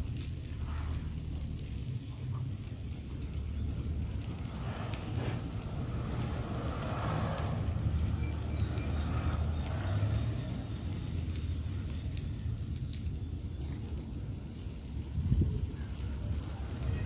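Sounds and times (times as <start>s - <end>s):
bicycle tyres on brick paving: 0.0s - 17.0s
wind on microphone: 14.9s - 17.0s.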